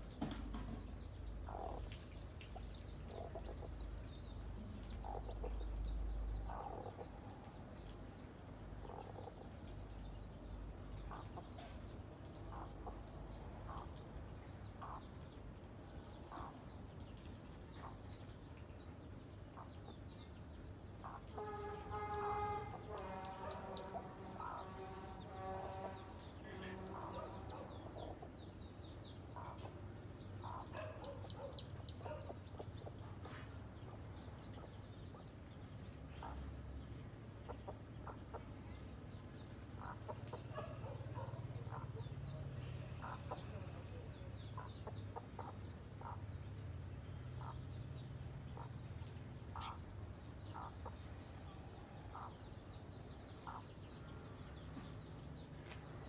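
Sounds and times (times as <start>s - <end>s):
chicks peeping: 0.3s - 7.1s, 14.8s - 15.0s, 21.0s - 36.6s, 37.4s - 46.6s, 47.4s - 52.4s, 53.2s - 54.0s
hen clucking: 1.4s - 3.8s, 4.6s - 5.8s, 6.4s - 7.2s, 39.8s - 46.2s, 50.5s - 51.2s.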